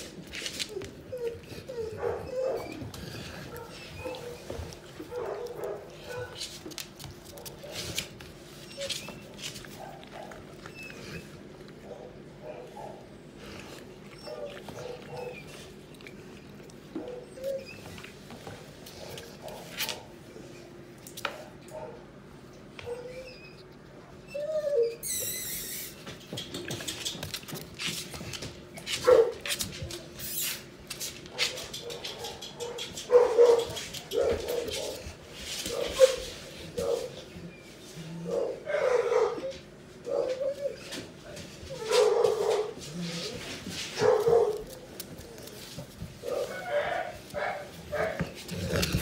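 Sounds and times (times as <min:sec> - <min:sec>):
puppy whimpering and yipping: 0:00.7 - 0:02.9, 0:24.3 - 0:26.0.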